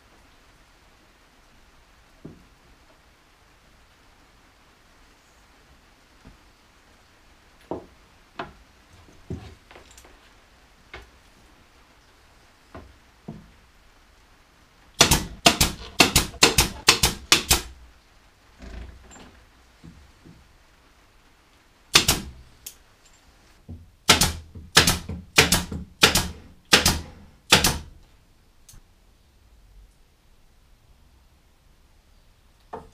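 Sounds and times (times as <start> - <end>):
pin nailer firing into plywood: 15.0 - 17.7, 22.0 - 22.3, 24.1 - 27.9.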